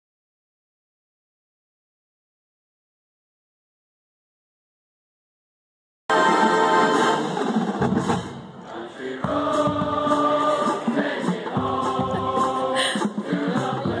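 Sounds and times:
marching band playing held chords: 0:06.1 - 0:14.0.

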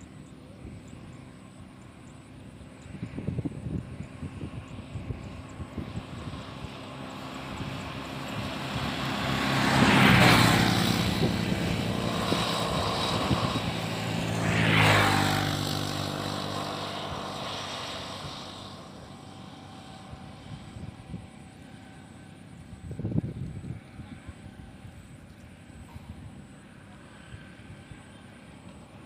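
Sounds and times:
motor engine passing by: 0:00.0 - 0:29.0.

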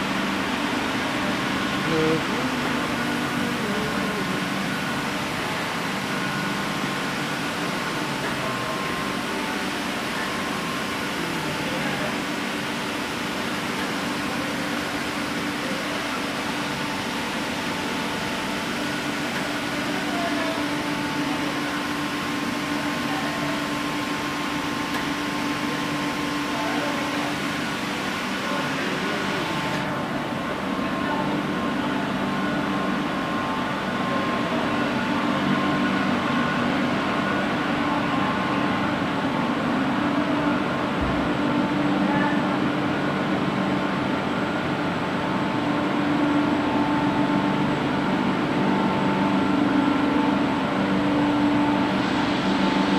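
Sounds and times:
machinery humming with steady tones: 0:00.0 - 0:52.9.

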